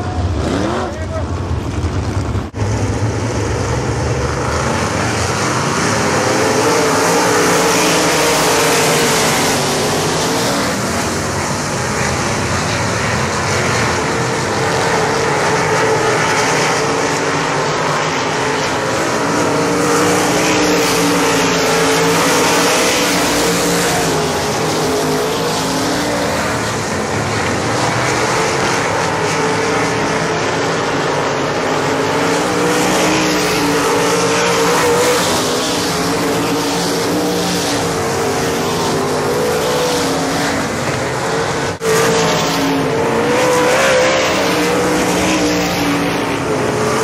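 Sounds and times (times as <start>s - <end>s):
racing car engines running hard: 0.0s - 47.0s.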